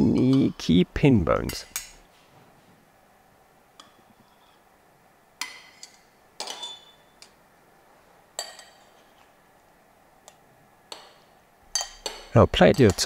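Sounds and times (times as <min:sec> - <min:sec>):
metal utensils clinking on plates: 0:05.4 - 0:07.4, 0:08.4 - 0:09.3, 0:10.9 - 0:13.0.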